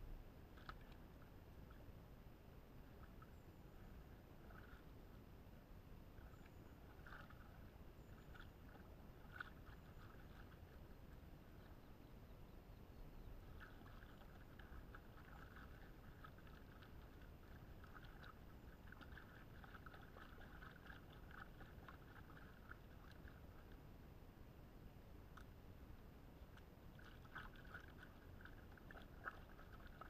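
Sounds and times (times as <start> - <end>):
water splashing and sloshing: 0.5 - 1.9, 2.7 - 5.3, 6.0 - 11.4, 13.4 - 24.0, 26.4 - 30.0.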